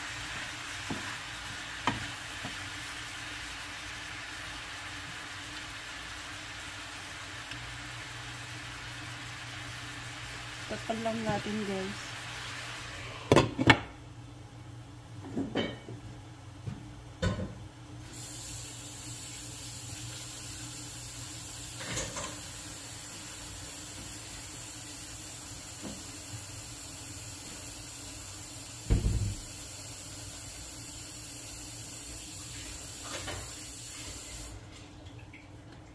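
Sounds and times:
meat sizzling in a pan: 0.0 - 13.4, 18.0 - 34.6
low thump: 28.9 - 29.4.

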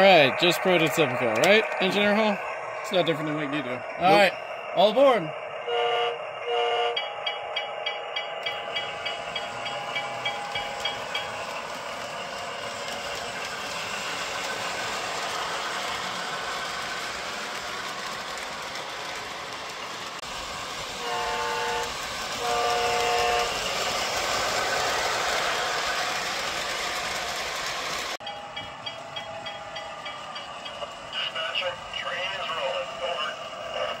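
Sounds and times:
model train rolling on track: 0.0 - 34.0
train horn blasts: 5.6 - 7.0, 21.0 - 23.6.

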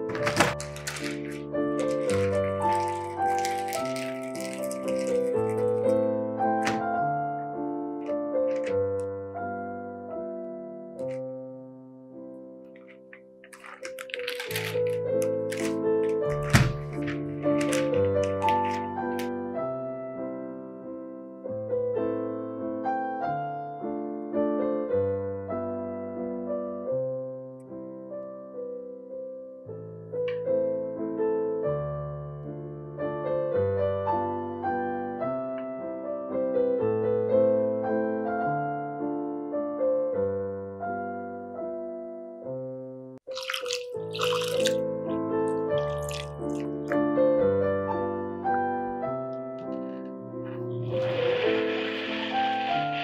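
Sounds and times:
piano music: 0.0 - 53.0
water splashing in a bowl: 0.6 - 6.0, 43.2 - 44.8, 45.5 - 47.0, 50.8 - 53.0.

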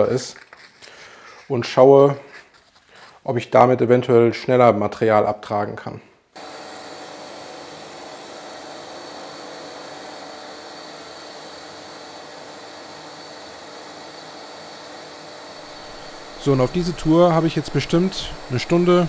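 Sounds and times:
disc sander grinding: 6.4 - 19.0.

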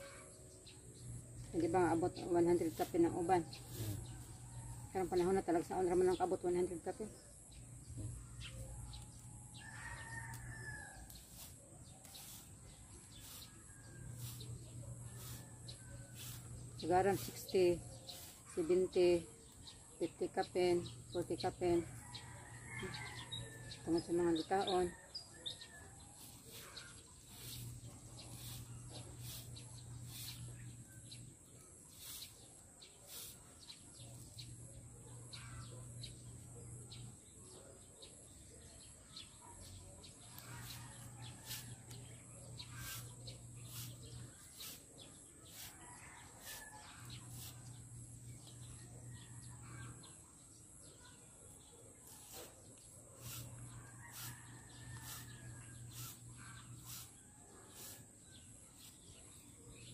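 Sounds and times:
birds calling: 9.6 - 37.2, 39.6 - 50.2, 52.0 - 59.9
rooster crowing: 53.9 - 55.3.

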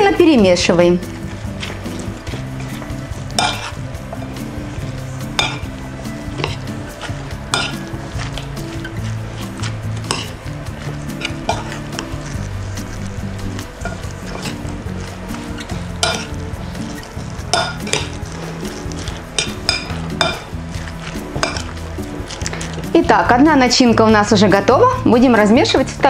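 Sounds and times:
background music: 0.0 - 26.0
fork mashing wet filling: 1.0 - 23.0
fork scraping bowl: 1.1 - 22.9.

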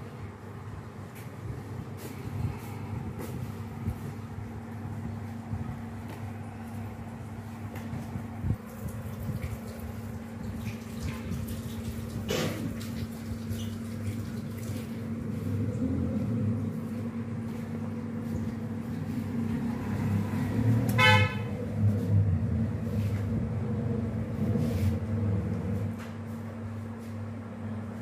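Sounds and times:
low background hum: 0.0 - 28.0
short horn toot: 20.9 - 21.5.

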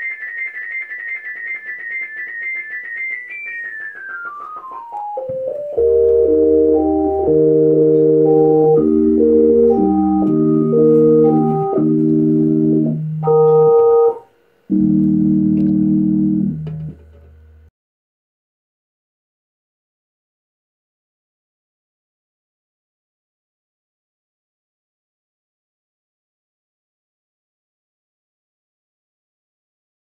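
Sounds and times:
falling run of pure tones: 0.0 - 17.0
synth chords: 0.0 - 17.0
low bass tone: 5.5 - 14.1, 14.7 - 17.0.

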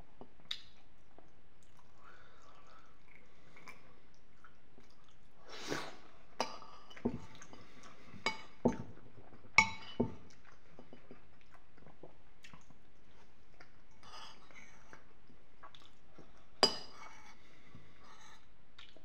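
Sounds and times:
spoon clinking on ceramic bowl: 9.6 - 10.2.

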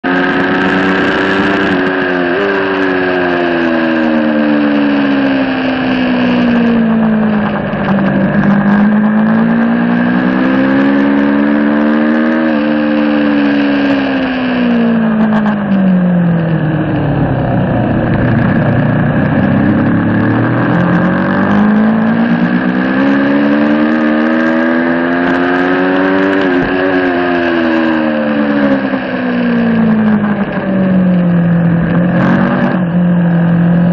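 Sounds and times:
motorcycle engine revving: 0.0 - 33.9
wind rushing over microphone: 0.0 - 33.9.

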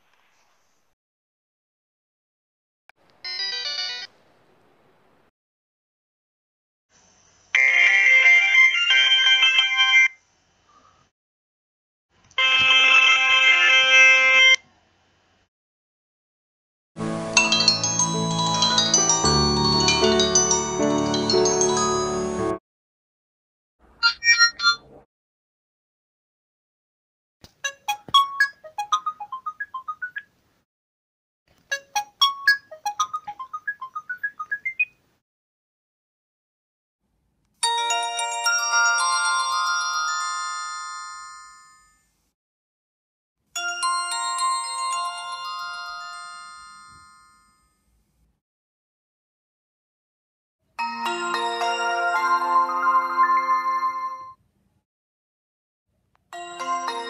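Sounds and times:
mobile phone polyphonic jingle: 3.2 - 4.1.

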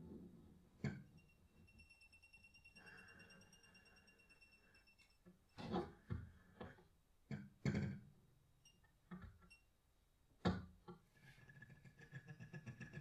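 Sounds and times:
faint high tones: 0.9 - 6.0.

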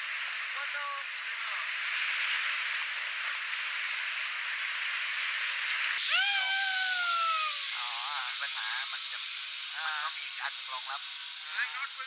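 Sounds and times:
long call sliding down in pitch: 6.0 - 7.8.

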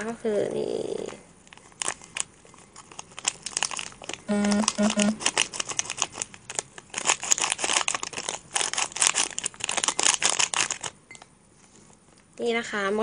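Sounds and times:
plastic sachet crinkling: 1.4 - 11.0.

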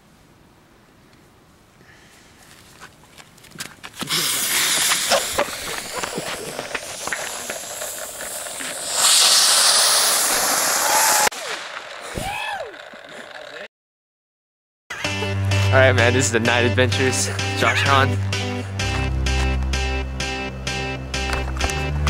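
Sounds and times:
fireworks hissing sparks: 4.0 - 13.4
fireworks crackling: 4.0 - 13.7
fuse sputtering: 4.0 - 13.7.

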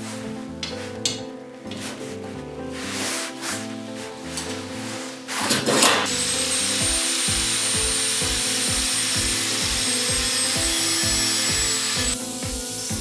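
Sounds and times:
background music with beat: 0.0 - 13.0
angle grinder cutting steel: 5.4 - 13.0.

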